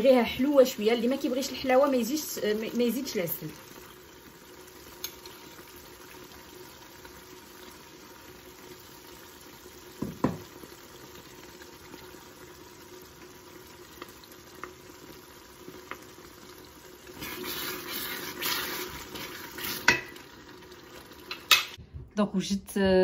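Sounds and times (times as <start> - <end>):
onions sizzling in pot: 0.0 - 21.8
metal spoon knocking on pot: 10.0 - 10.4.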